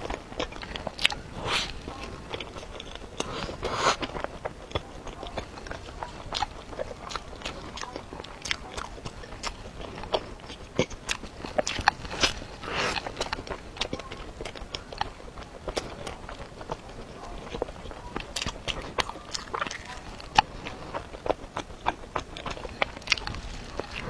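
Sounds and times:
biting and chewing crisp cake: 0:00.0 - 0:24.0
mouth clicks: 0:00.0 - 0:24.0.

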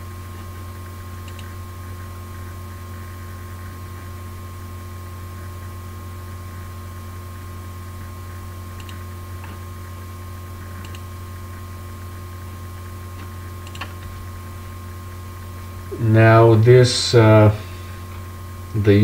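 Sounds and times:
low electrical hum: 0:00.0 - 0:19.0
faint clicks: 0:08.8 - 0:09.6, 0:10.8 - 0:11.0.

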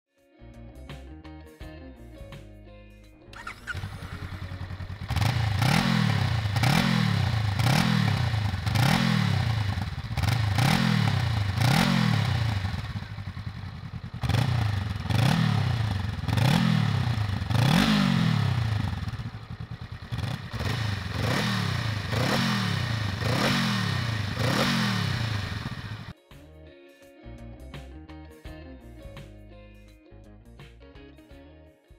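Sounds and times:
motorcycle engine revving: 0:03.4 - 0:26.1.

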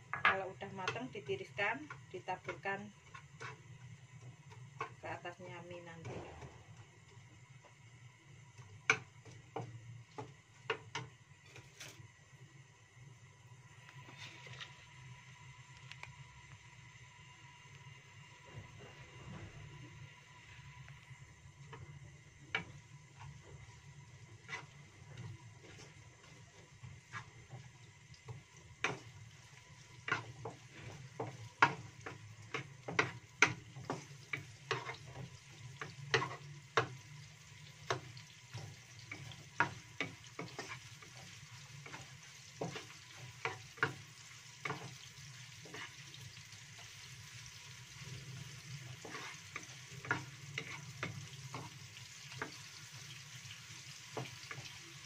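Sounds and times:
shallots sizzling in oil: 0:00.0 - 0:55.0
wooden spatula knocking pan: 0:00.1 - 0:01.2, 0:30.0 - 0:37.0, 0:37.8 - 0:45.0.

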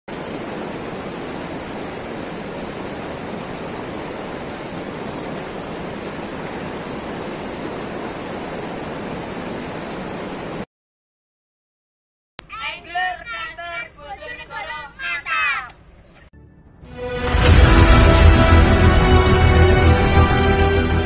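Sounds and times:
steady rushing noise: 0:00.1 - 0:10.6.

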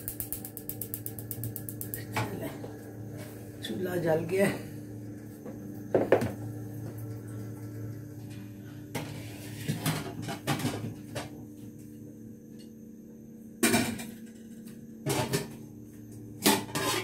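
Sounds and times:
steady low hum: 0:00.0 - 0:16.8
pots and dishes clattering: 0:16.4 - 0:17.0.

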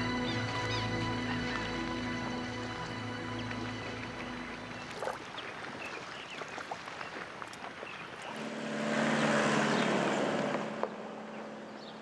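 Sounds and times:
tyre noise on dirt road: 0:03.4 - 0:12.0
truck engine hum: 0:08.3 - 0:12.0.

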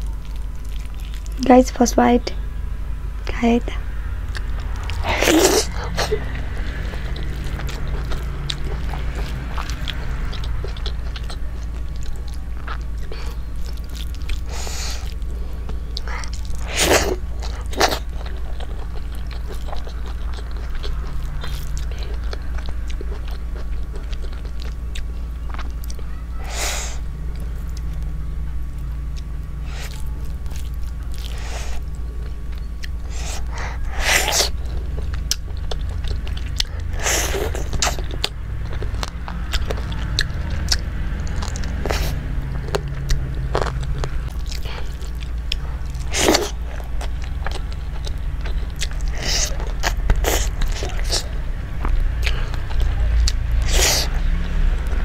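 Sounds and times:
person chewing food: 0:00.0 - 0:01.5, 0:03.7 - 0:55.0
steady low hum: 0:00.0 - 0:55.0.

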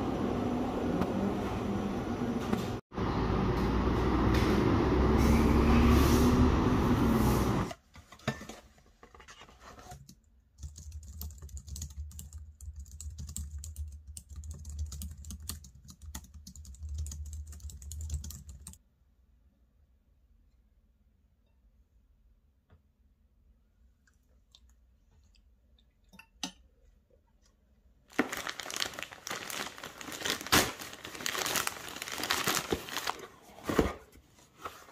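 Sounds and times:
computer keyboard typing: 0:10.6 - 0:18.8.

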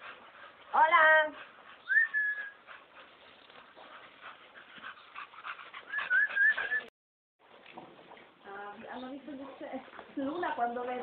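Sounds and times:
dog whining: 0:01.8 - 0:02.7, 0:05.9 - 0:06.9.

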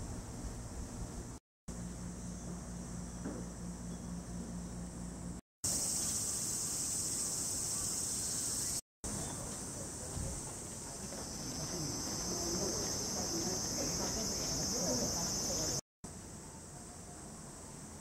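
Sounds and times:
cicadas droning: 0:01.7 - 0:15.8.

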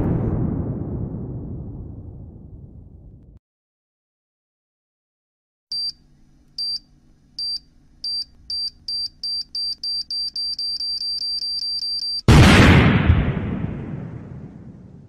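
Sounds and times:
high-pitched timer beeps: 0:05.7 - 0:06.0, 0:07.4 - 0:12.3.

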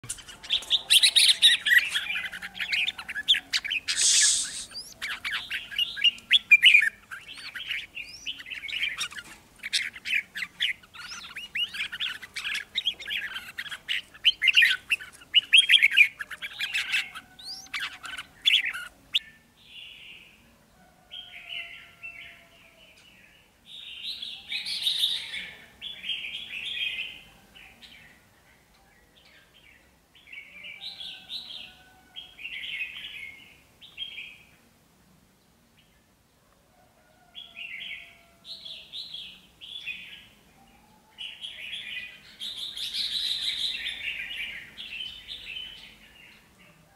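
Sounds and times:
birds chirping and singing: 0:00.0 - 0:20.5, 0:21.1 - 0:34.5, 0:37.3 - 0:46.9.

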